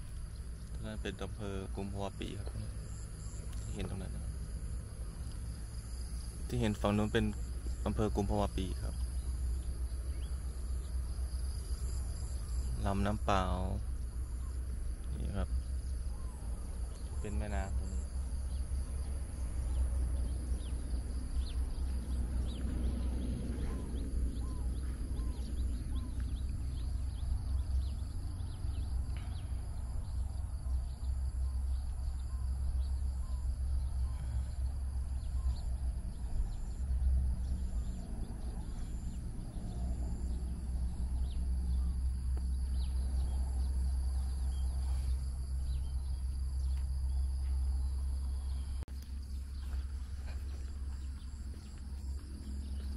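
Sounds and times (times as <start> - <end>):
high insect drone: 0.0 - 52.9
bird chirps: 6.5 - 52.9
low rumble: 13.7 - 52.9.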